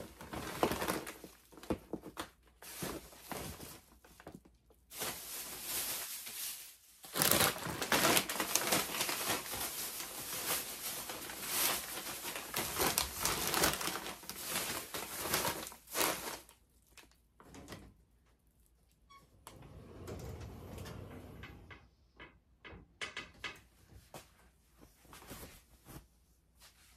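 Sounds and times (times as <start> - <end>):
plastic bag rustling: 0.0 - 17.2.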